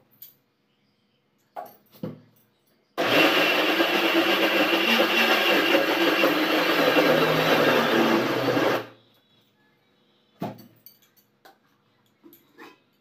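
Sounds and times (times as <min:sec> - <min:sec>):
mixer grinder motor running: 0:03.0 - 0:08.9.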